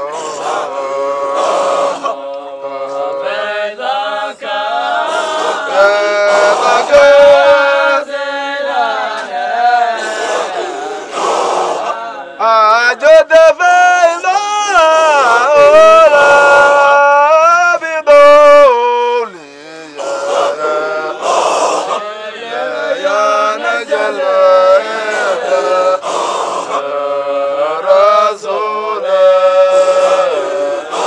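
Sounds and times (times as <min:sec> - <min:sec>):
man chanting melodically: 0:00.0 - 0:31.0.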